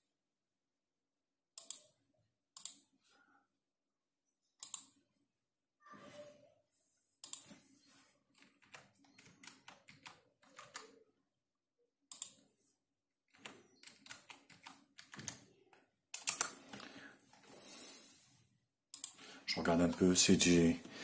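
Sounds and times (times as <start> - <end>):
typing on computer keyboard: 8.3 - 11.0, 13.3 - 17.0.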